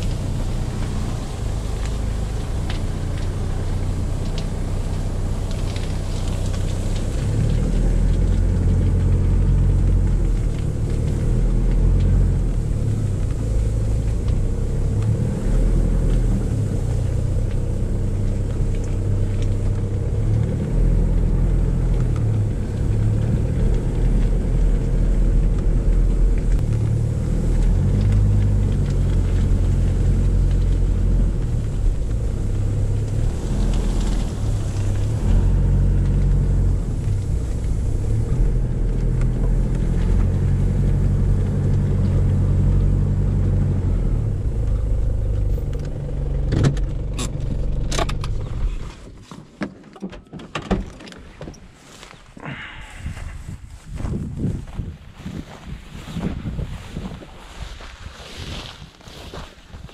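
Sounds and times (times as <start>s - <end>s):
engine low rumble from cabin: 0.0s - 49.4s, 50.0s - 59.2s.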